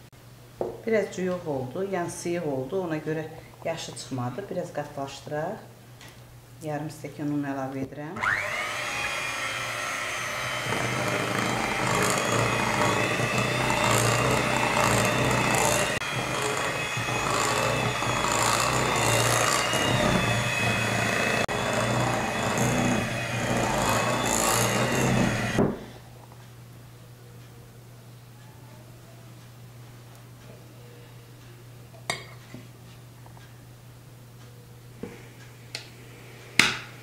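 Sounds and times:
beaters churning thick batter: 8.2 - 25.6
electric hand mixer whine: 8.2 - 25.6.

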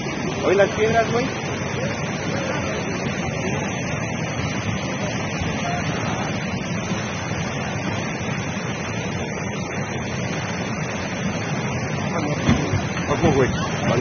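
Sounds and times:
floodwater rushing: 0.0 - 14.0.

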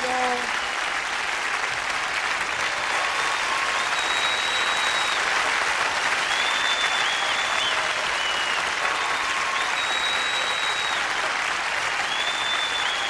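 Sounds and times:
audience applauding: 0.0 - 13.0
high whistles: 3.0 - 11.3, 11.9 - 13.0.

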